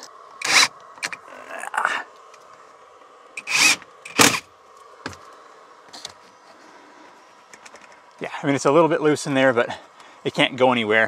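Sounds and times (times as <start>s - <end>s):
cordless drill driving screws: 0.4s - 1.2s, 3.4s - 4.4s.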